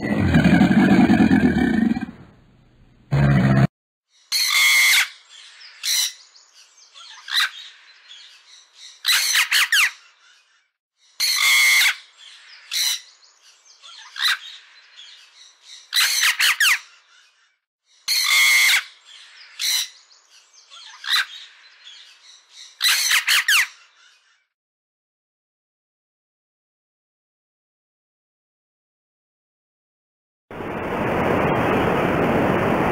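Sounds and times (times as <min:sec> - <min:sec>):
parrot squawking: 0:04.3 - 0:05.2, 0:07.0 - 0:07.7, 0:09.0 - 0:10.0, 0:11.2 - 0:12.1, 0:13.9 - 0:14.6, 0:15.9 - 0:16.8, 0:18.1 - 0:19.0, 0:20.8 - 0:21.4, 0:22.8 - 0:23.8.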